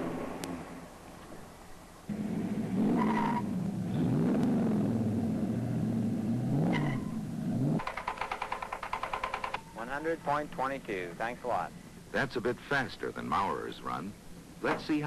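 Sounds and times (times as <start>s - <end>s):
car engine accelerating hard: 2.1s - 7.8s.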